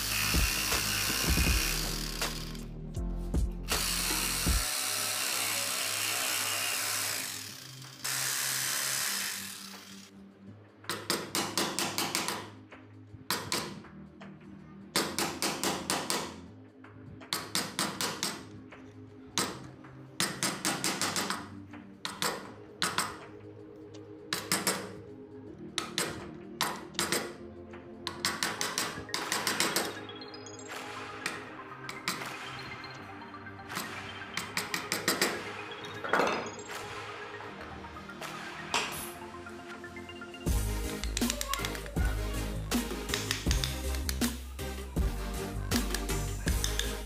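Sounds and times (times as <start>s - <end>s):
jigsaw cutting wood: 0.0s - 2.6s, 3.7s - 10.1s.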